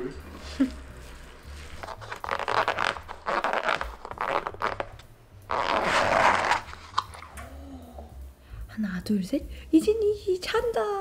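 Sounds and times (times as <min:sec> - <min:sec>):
thin plastic lid crackling: 0:01.6 - 0:07.4.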